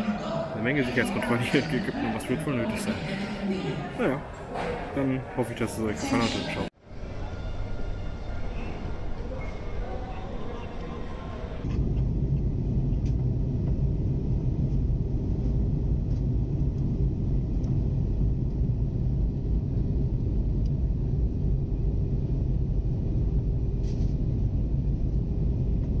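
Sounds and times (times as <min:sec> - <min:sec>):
aircraft cabin engine rumble: 0:11.6 - 0:26.0.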